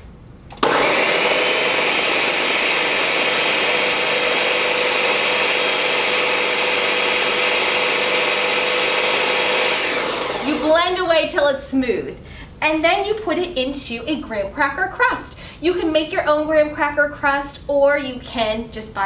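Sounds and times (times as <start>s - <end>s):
blender motor running: 0.6s - 10.8s.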